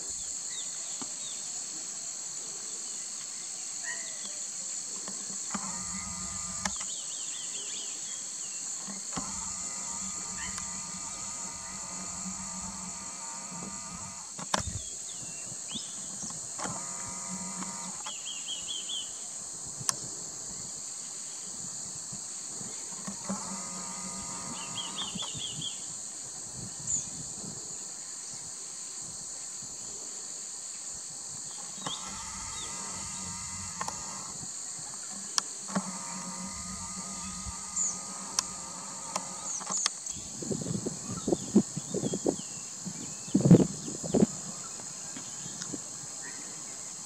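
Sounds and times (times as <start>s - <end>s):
high-pitched insect drone: 4.0s - 15.6s, 16.2s - 18.2s, 20.4s - 27.2s, 31.3s - 47.0s
low buzzy hum: 5.5s - 6.8s, 9.1s - 14.9s, 16.6s - 18.0s, 23.0s - 25.3s, 31.7s - 34.5s, 35.7s - 39.7s
sharp clicks: 5.5s - 6.9s, 8.8s - 14.8s, 16.3s - 18.2s, 31.6s - 34.4s, 35.4s - 40.1s.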